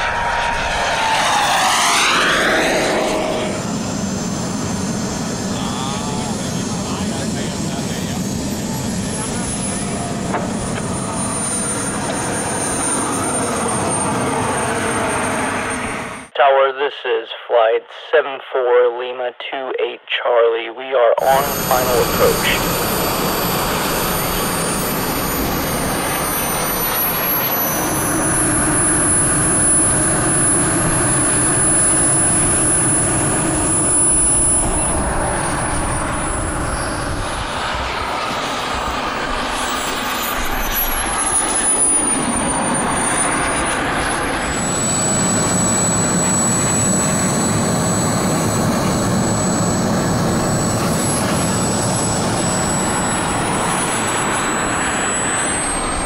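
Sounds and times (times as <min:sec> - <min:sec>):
high turbine whine: 0:00.0 - 0:16.4, 0:21.2 - 0:56.0
jet engine exhaust rushing: 0:00.0 - 0:16.4, 0:21.2 - 0:56.0.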